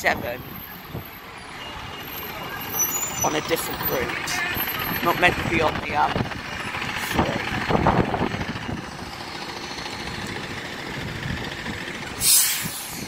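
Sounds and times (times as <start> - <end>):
bus engine idling: 0.0 - 13.0
street traffic noise: 0.0 - 13.0
loud air hiss: 12.2 - 13.0.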